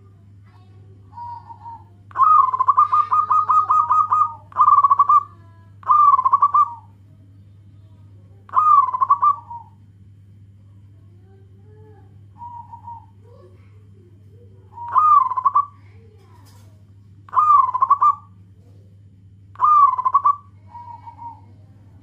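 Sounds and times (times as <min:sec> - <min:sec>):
dove cooing: 0:00.0 - 0:07.0, 0:08.5 - 0:09.8, 0:11.7 - 0:16.6, 0:17.3 - 0:18.4, 0:19.5 - 0:22.0.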